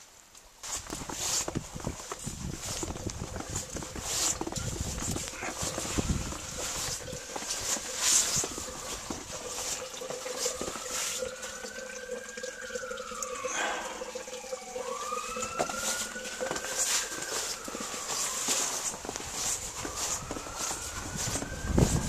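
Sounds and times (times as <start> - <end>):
footsteps crunching in snow: 0.6 - 11.3, 15.6 - 22.0
distant siren wailing: 2.2 - 22.0.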